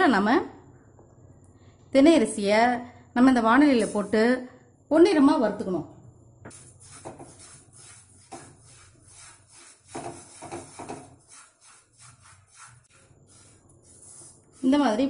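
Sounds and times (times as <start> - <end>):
grains scraping in a pan: 6.6 - 14.8.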